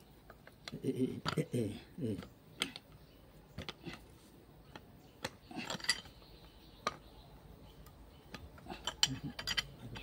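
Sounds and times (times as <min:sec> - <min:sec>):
metal tools clicking on springs: 0:04.7 - 0:06.2, 0:07.8 - 0:10.0.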